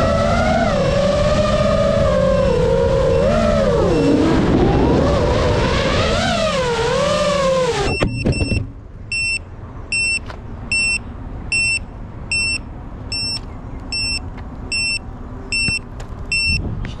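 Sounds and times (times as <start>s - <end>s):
electronic buzzer beeping: 7.9s - 16.6s.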